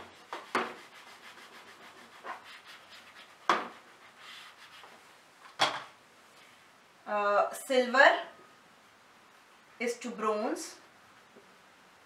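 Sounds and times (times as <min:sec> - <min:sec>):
eraser wiping whiteboard: 0:00.0 - 0:05.2.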